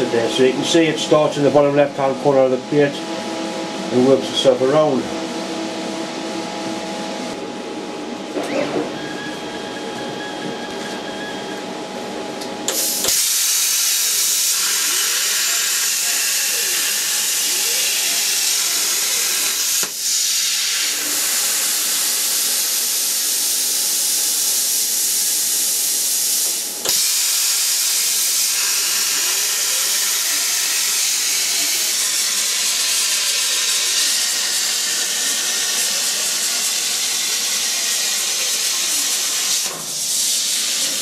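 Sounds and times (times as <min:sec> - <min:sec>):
plasma arc hissing: 0:12.7 - 0:41.0.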